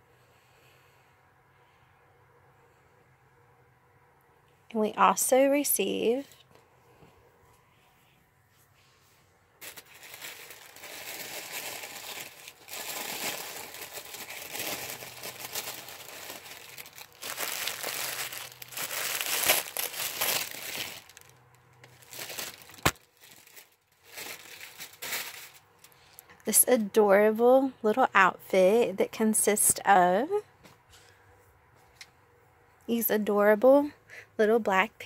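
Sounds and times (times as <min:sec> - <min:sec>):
wrapping paper crinkling and tearing: 0:09.6 - 0:26.0.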